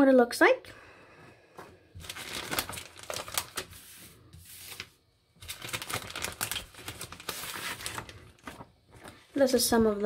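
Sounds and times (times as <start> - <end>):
plastic packaging crinkling: 2.0 - 9.7.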